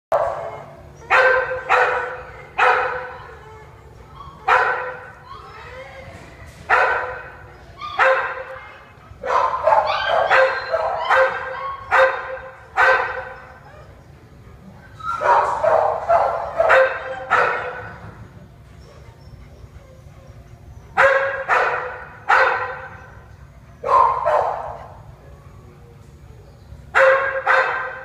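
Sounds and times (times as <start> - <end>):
dog barking with echo: 0.1 - 3.1, 8.0 - 8.6, 9.2 - 13.4, 15.2 - 17.9, 21.0 - 23.0, 23.8 - 24.9, 27.0 - 28.0.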